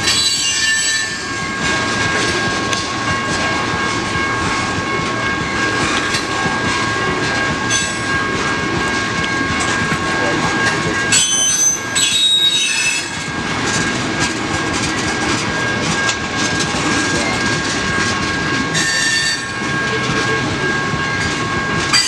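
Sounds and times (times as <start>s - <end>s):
high-pitched wheel squeal: 0.0s - 1.5s, 11.0s - 13.4s, 18.4s - 22.0s
train wheels rumbling on rails: 0.0s - 22.0s.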